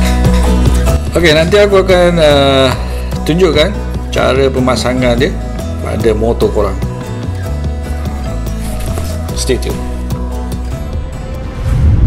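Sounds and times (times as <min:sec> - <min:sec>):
background music with held notes: 0:00.0 - 0:12.0
low rumbling sound effect: 0:11.4 - 0:12.0.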